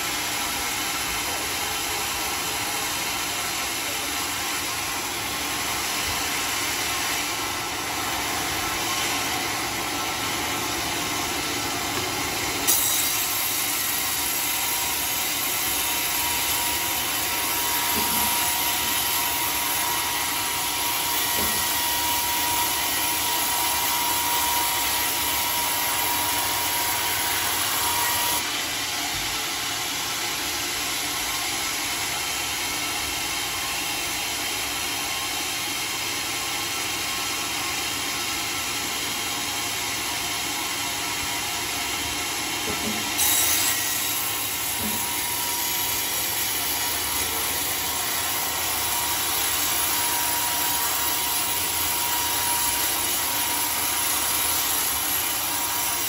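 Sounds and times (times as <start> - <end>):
sawmill running: 0.0 - 56.0
blade cutting through wood: 4.6 - 28.9, 42.3 - 56.0.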